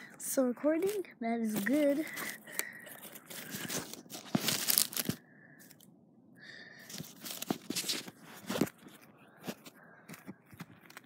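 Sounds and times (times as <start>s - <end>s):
phone handling scrapes: 1.6s - 5.2s.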